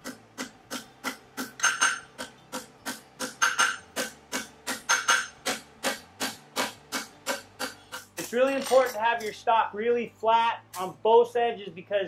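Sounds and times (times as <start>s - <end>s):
hammer striking metal on anvil: 0.4s - 2.3s, 3.2s - 9.4s
anvil ringing: 8.2s - 9.4s.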